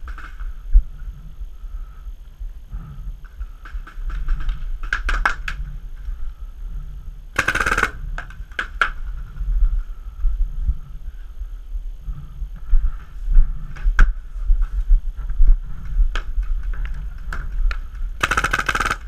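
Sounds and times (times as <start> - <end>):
paintball markers firing: 7.4 - 9.0, 18.2 - 19.0.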